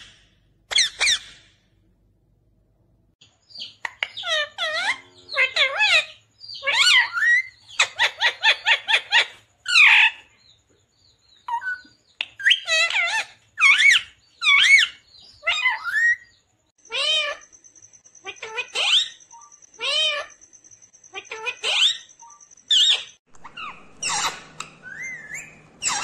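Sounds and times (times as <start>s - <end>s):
parrot squawking: 0.7s - 1.5s, 3.6s - 10.3s, 12.4s - 17.5s, 18.2s - 20.4s, 21.1s - 26.0s.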